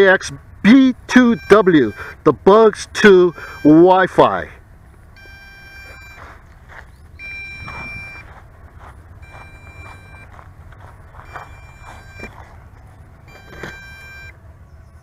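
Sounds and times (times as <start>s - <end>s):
long electronic beeps: 0.7s - 2.2s, 3.1s - 4.2s, 5.1s - 6.3s, 7.0s - 8.4s, 9.2s - 10.3s, 11.2s - 12.3s, 13.2s - 14.4s
low wind rumble: 4.4s - 15.0s.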